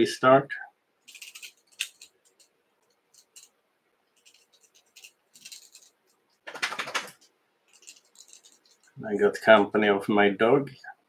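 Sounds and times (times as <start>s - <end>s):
fingers scratching and rustling thread: 1.0s - 9.0s.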